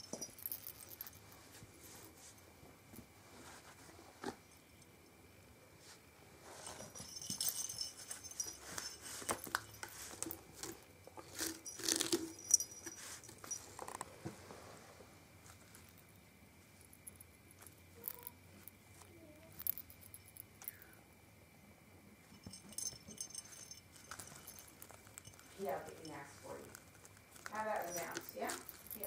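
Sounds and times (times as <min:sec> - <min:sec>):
kitten scratching and batting toys: 0:06.4 - 0:14.4, 0:22.4 - 0:29.0.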